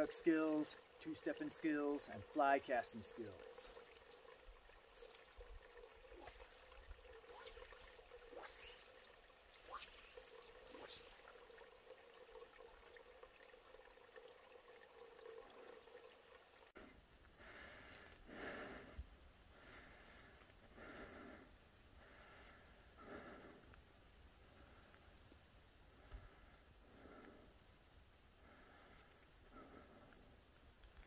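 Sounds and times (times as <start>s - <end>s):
faint uneven hiss: 16.8s - 31.0s
faint ticks: 25.9s - 27.8s, 28.9s - 31.0s.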